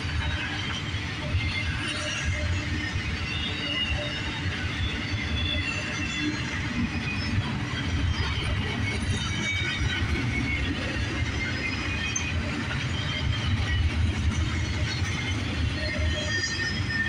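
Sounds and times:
high-pitched wheel squeals: 0.0 - 17.0
train wheels rumbling on rails: 0.0 - 17.0.

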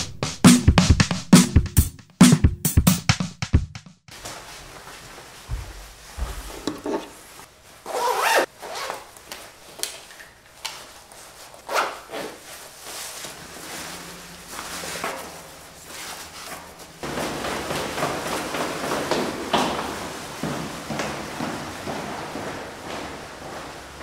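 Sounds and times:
fabric rustling: 4.1 - 24.0
zipper pulled: 7.8 - 9.1, 11.6 - 12.5.

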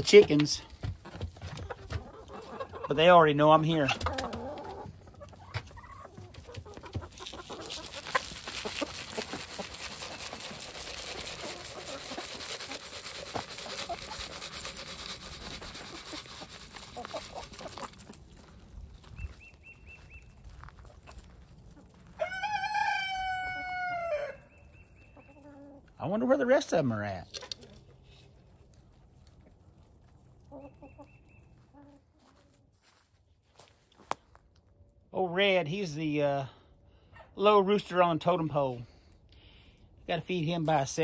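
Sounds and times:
rustling noise: 6.2 - 22.2
rooster crowing: 22.2 - 24.5.

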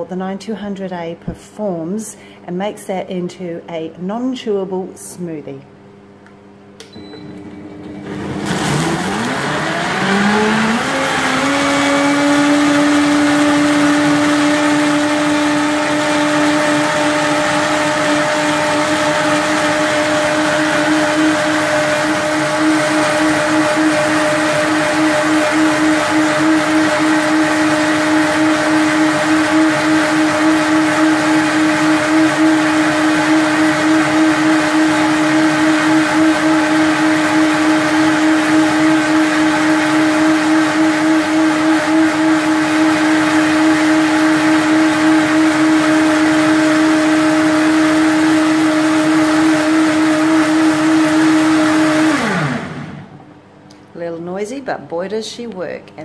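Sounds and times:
blender motor whining: 7.3 - 53.2
blender blades spinning down: 7.4 - 53.2.

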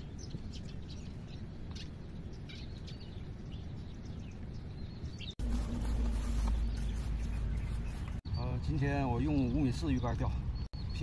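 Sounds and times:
small birds chirping: 0.0 - 11.0
low outdoor rumble: 3.0 - 8.2
low humming drone: 5.4 - 8.2.

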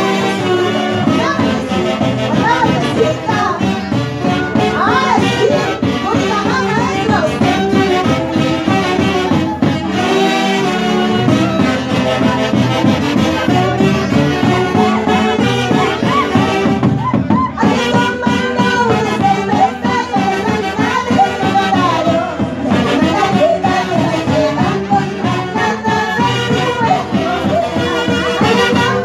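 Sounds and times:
live band music: 0.0 - 29.0
saxophones and clarinets melody: 0.0 - 29.0
bass drum: 0.1 - 29.0.

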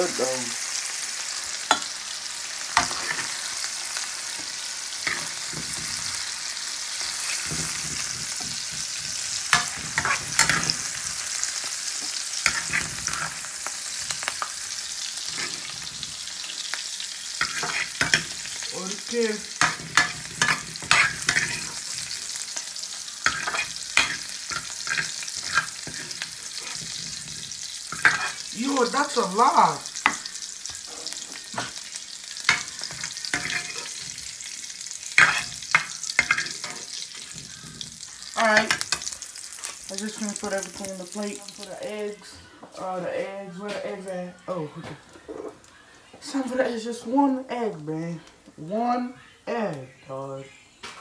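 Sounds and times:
vegetables sizzling in a frying pan: 0.0 - 50.1
metal spoon scraping a pan: 1.6 - 29.2, 29.9 - 40.8.

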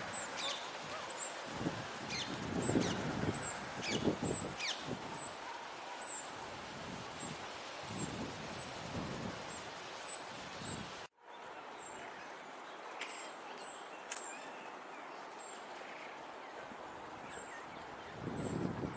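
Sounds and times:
steady background hiss: 0.0 - 18.9
small birds chirping: 2.0 - 6.4.

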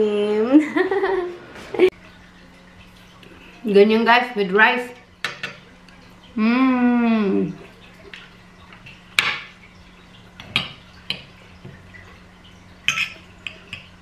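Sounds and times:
cutlery clinking on a plate: 12.9 - 13.9.

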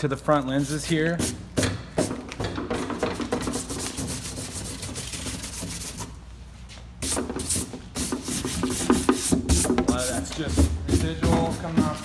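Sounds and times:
hand rubbing scratchy strokes: 0.4 - 1.4, 3.2 - 6.2, 7.0 - 12.0.

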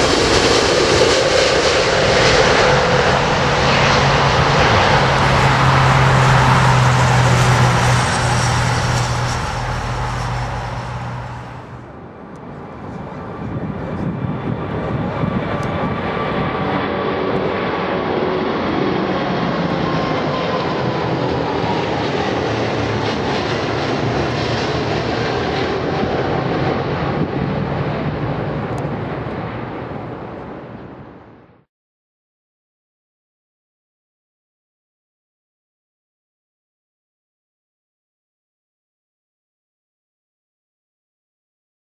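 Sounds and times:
jet engine roar: 0.0 - 31.5
jet engines roaring on takeoff: 0.0 - 31.6.

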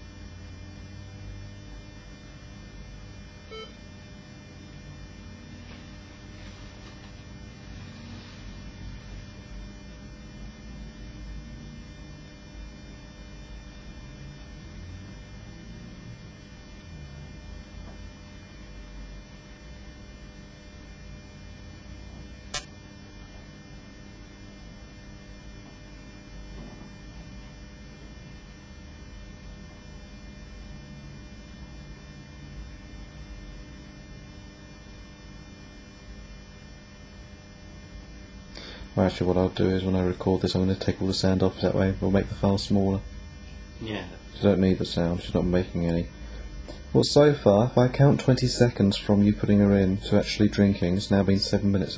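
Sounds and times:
electrical mains hum: 0.0 - 51.9
sharp click: 22.5 - 22.8.

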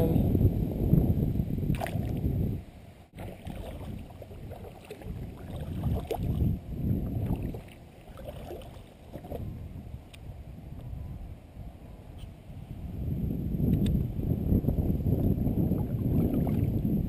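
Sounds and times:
wind on microphone: 0.0 - 17.0
water sloshing against kayak hull: 3.2 - 9.5.

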